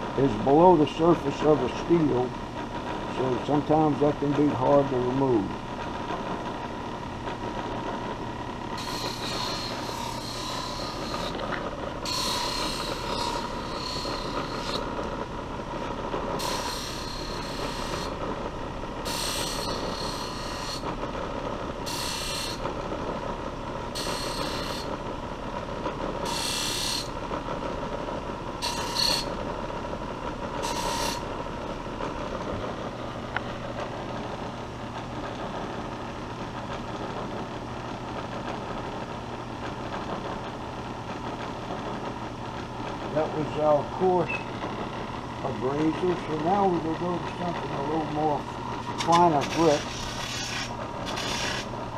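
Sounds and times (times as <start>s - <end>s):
bench buffer motor running: 0.0s - 27.5s, 28.3s - 34.2s, 43.2s - 51.9s
knife blade hissing on buffing wheel: 8.8s - 11.4s, 12.0s - 14.9s, 16.4s - 18.2s, 19.0s - 20.9s, 21.8s - 22.6s, 24.0s - 24.9s, 26.2s - 27.1s, 28.6s - 29.4s, 30.6s - 31.3s, 49.0s - 51.7s.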